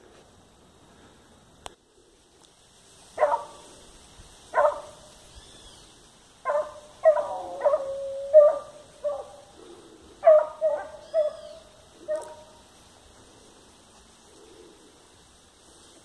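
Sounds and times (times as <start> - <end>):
dog barking: 3.2 - 3.6, 4.5 - 5.0, 6.4 - 9.5, 10.2 - 12.6
dog baying: 6.5 - 9.5, 10.2 - 12.5.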